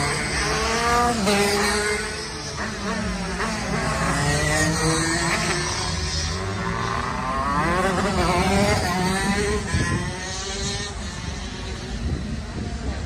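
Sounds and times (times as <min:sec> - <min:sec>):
go-kart engines revving: 0:00.0 - 0:13.0.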